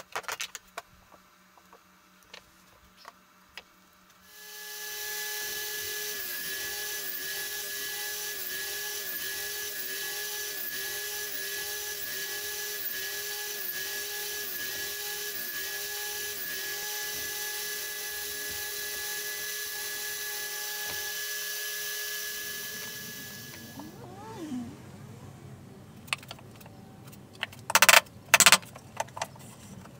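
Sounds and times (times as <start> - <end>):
table saw cutting wood: 4.3 - 24.7.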